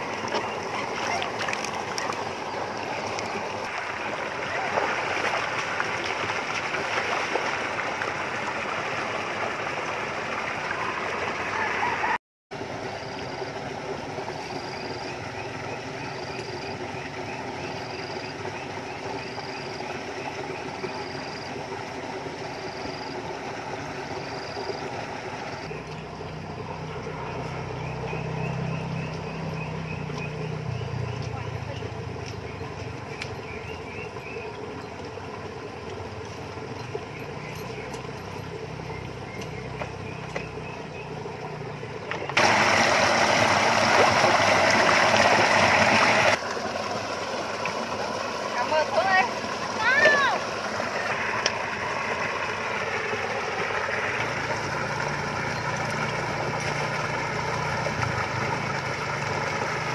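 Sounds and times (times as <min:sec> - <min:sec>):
fish thrashing water: 0:00.0 - 0:09.6.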